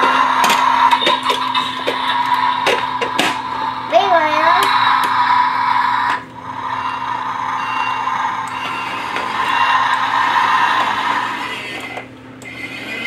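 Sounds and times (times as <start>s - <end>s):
toy truck motor whirring: 8.5s - 13.0s.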